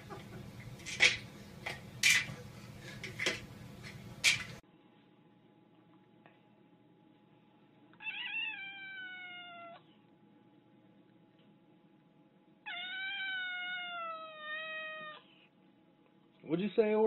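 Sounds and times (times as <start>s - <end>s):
cat meowing: 8.0s - 9.9s, 12.6s - 15.3s.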